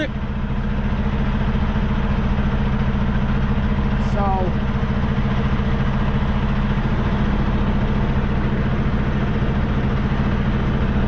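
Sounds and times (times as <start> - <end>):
truck diesel engine idling: 0.0 - 11.0.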